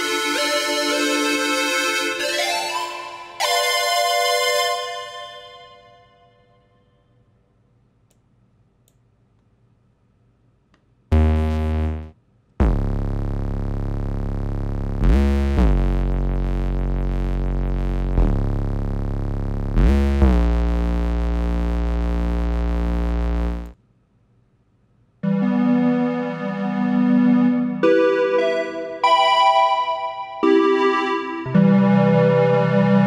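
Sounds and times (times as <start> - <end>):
synth bass notes: 11.1 - 23.8.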